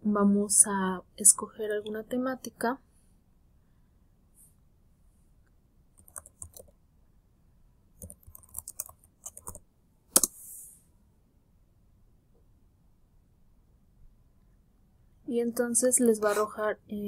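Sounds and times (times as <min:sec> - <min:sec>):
keyboard typing: 0:06.0 - 0:06.8, 0:08.0 - 0:10.3
soft hiss: 0:10.1 - 0:11.1.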